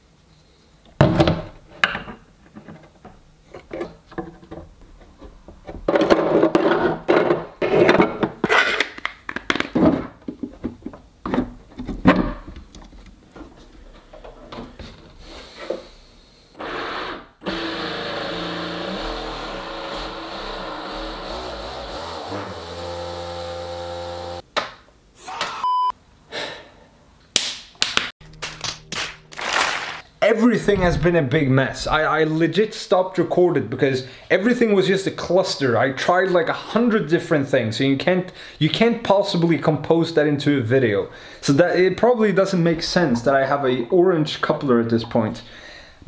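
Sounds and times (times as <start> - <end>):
cordless drill running: 16.6 - 24.4.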